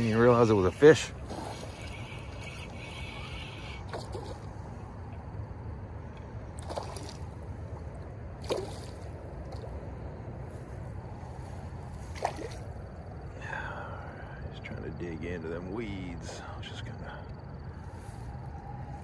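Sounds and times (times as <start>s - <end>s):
low background rush: 0.0s - 19.0s
fish splashing at water surface: 1.0s - 4.6s, 6.6s - 9.7s, 12.1s - 12.8s.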